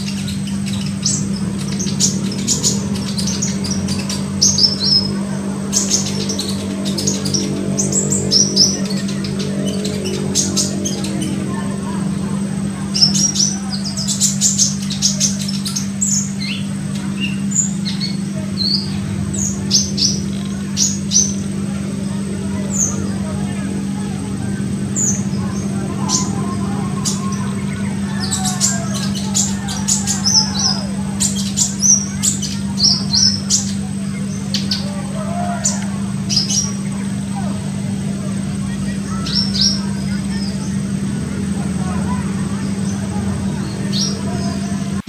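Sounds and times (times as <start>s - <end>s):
bird chirps and trills: 0.0s - 45.0s
low hum: 0.0s - 45.0s.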